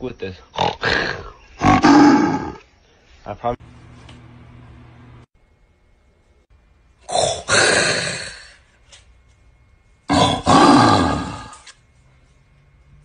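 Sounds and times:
man roaring into cardboard tube: 0.8 - 2.6, 7.1 - 8.6, 10.1 - 11.7.

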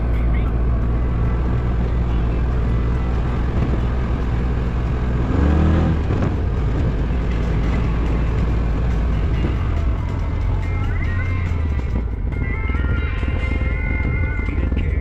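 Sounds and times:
off-road vehicle engine running: 0.0 - 15.0.

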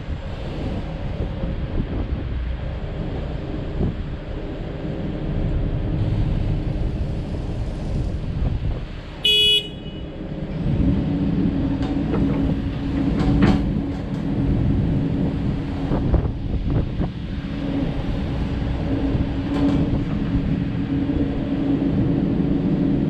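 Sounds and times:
excavator diesel engine running: 0.0 - 23.0
short horn beep: 9.2 - 10.1.

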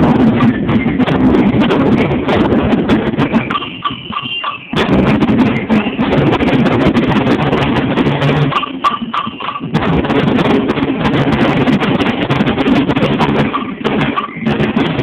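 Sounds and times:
marching snare and bass drums: 0.0 - 15.0.

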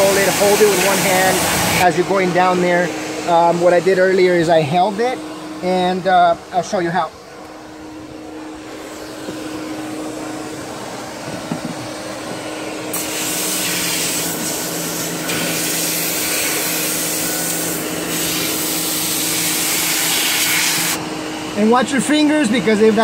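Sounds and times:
water jet hissing on panels: 0.0 - 2.0, 12.9 - 21.0
electric pressure washer running: 0.0 - 23.0
shop vacuum humming: 0.0 - 23.0.

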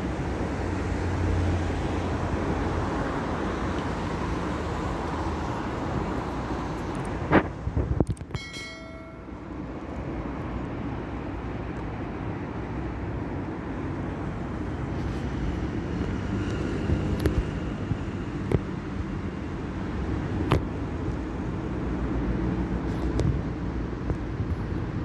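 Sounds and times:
street traffic noise: 0.0 - 25.0
metallic ringing tone: 8.3 - 9.7.

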